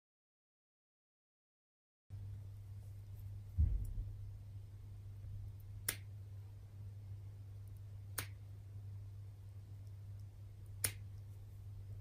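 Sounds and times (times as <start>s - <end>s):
nail clippers snipping claws: 10.8s - 11.1s.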